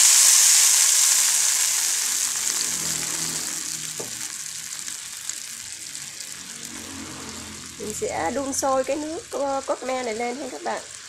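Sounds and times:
sauce sizzling in a wok: 0.0s - 11.0s.

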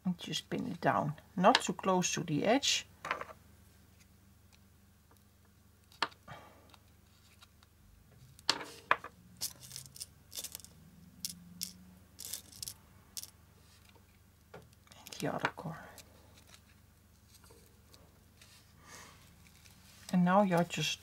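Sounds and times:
metal pins clicking: 9.4s - 13.3s.

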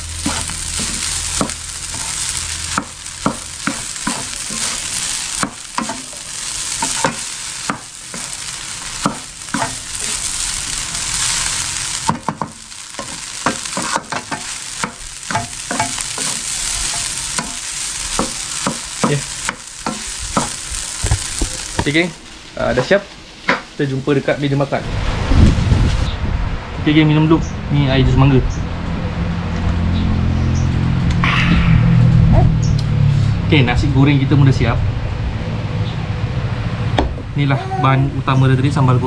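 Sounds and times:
rice sizzling in wok: 0.0s - 26.1s
spatula knocking and scraping pan: 12.1s - 22.0s.

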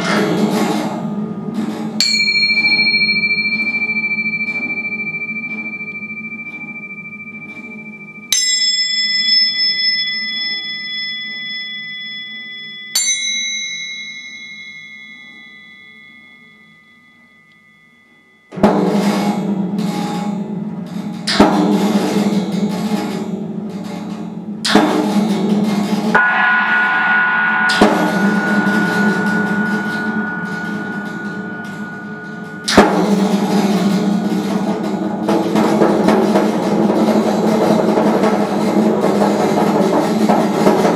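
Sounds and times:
struck metal bell-like clangs: 1.4s - 19.6s, 26.2s - 36.7s
high ringing tone: 2.1s - 18.6s, 26.2s - 34.3s.

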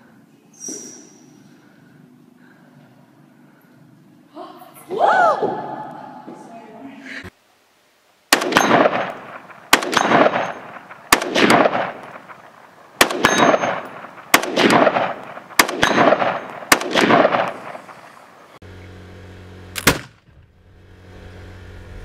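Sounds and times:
rifle gunshots with echo: 8.3s - 18.4s.

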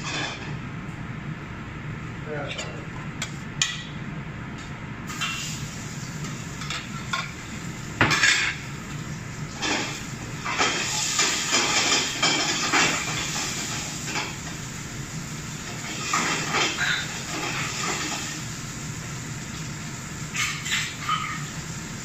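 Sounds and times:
frying hiss: 5.1s - 22.0s.

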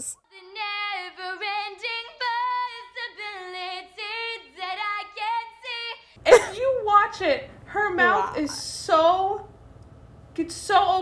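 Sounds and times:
woman singing a cappella: 0.0s - 6.2s, 10.4s - 11.0s.

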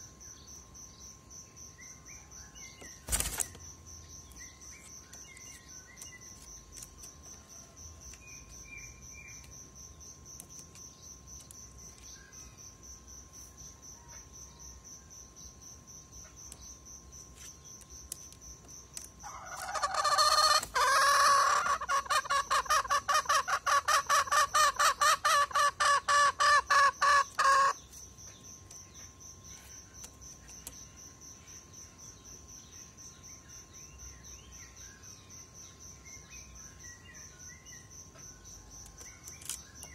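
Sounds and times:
faint insect trill: 0.0s - 39.9s
rooster crowing: 19.2s - 23.0s.

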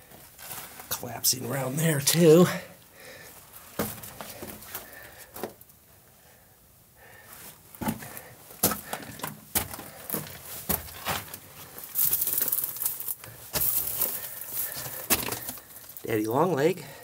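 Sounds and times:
footsteps crunching on gravel: 7.8s - 16.0s
scraping crunch of gravel: 10.4s - 16.0s.

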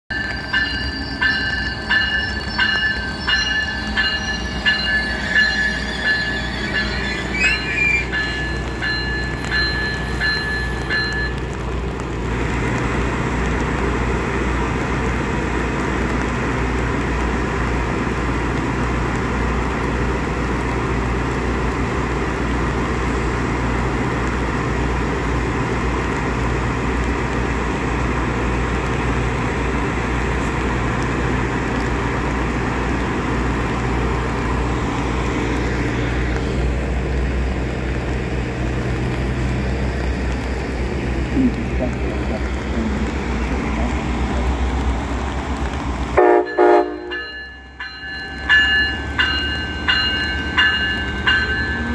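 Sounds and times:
train wheel squeal: 0.1s - 11.4s
train engine rumbling: 0.1s - 51.9s.

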